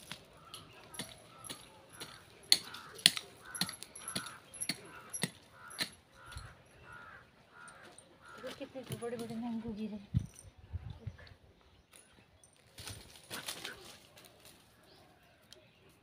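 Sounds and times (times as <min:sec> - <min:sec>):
bangles clinking: 0:00.0 - 0:07.9.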